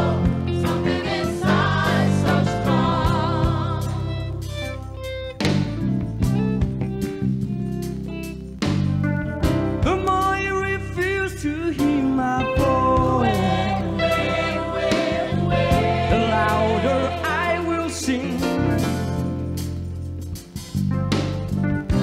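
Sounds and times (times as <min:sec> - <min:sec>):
choir singing: 0:00.0 - 0:04.4, 0:12.9 - 0:18.7
band with electric guitar and bass: 0:00.0 - 0:22.0.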